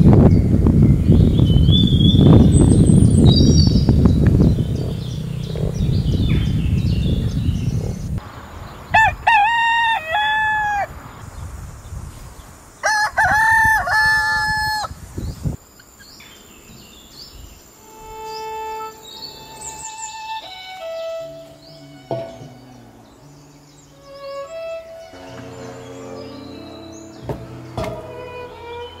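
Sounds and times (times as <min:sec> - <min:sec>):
low rumbling noise: 0:00.0 - 0:09.4, 0:16.8 - 0:29.0
small birds chirping: 0:00.0 - 0:09.4, 0:10.2 - 0:29.0
rooster crowing: 0:08.9 - 0:11.0, 0:12.8 - 0:15.0
soft instrumental music: 0:17.8 - 0:29.0.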